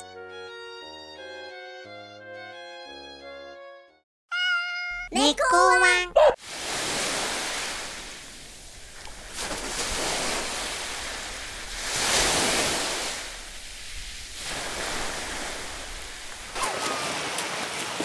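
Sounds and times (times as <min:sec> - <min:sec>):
sea surf washing on beach: 0:06.4 - 0:18.0.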